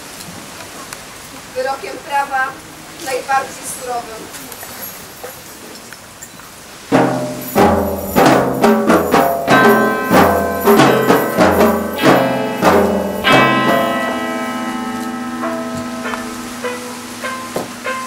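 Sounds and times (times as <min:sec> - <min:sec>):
instrumental music with ringing notes: 0:06.9 - 0:18.0.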